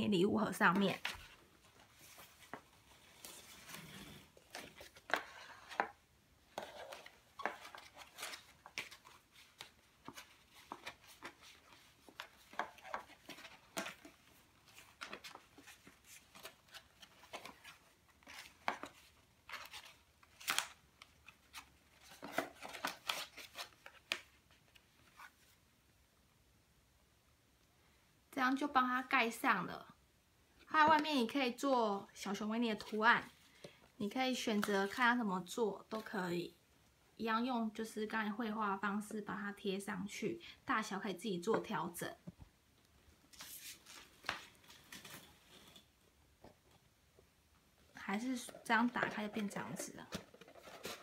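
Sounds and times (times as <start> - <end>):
stiff paper rustling: 48.5 - 51.0.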